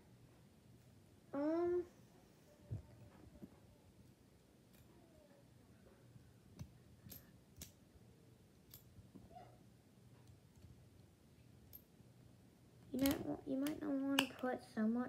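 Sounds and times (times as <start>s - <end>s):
faint clicks and taps: 5.8s - 7.8s.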